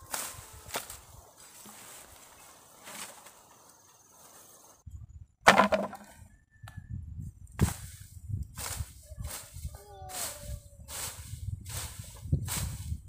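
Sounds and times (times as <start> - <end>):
hand tool striking ground: 0.1 - 2.2, 5.5 - 6.1.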